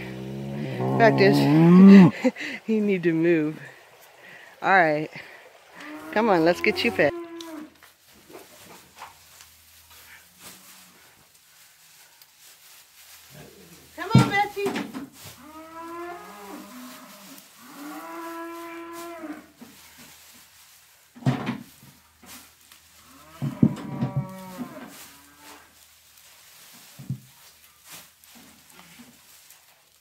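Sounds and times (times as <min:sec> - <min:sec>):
cows mooing: 0:00.0 - 0:02.3, 0:05.7 - 0:07.7, 0:15.4 - 0:19.5, 0:23.0 - 0:25.5.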